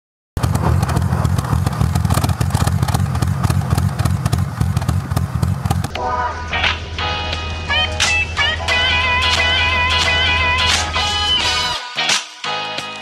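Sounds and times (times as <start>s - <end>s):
car engine idling: 0.4s - 11.7s
electric guitar music: 5.9s - 13.0s.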